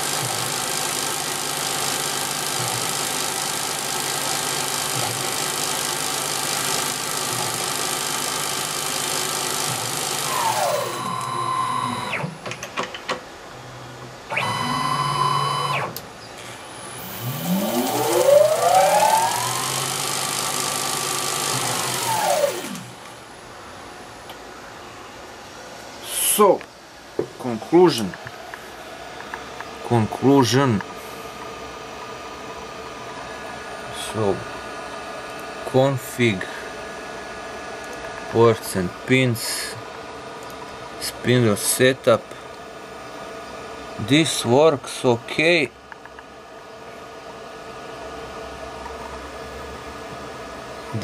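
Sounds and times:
lathe spindle motor whine: 0:09.6 - 0:12.2, 0:14.3 - 0:16.0, 0:16.6 - 0:23.0.

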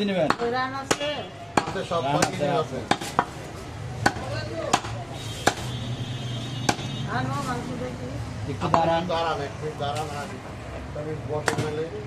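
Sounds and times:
cleaver chopping meat on wood: 0:00.2 - 0:03.4, 0:04.0 - 0:05.7, 0:06.6 - 0:06.9.

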